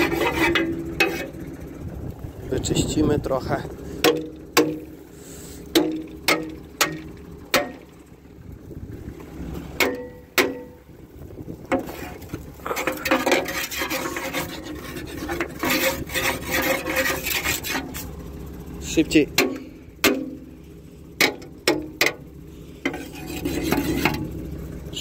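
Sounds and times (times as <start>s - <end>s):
scraping soil off metal: 0.0s - 1.5s, 11.7s - 18.2s, 21.3s - 24.5s
knocks on metal plough: 4.0s - 4.8s, 5.7s - 7.9s, 9.8s - 10.8s, 19.4s - 20.5s.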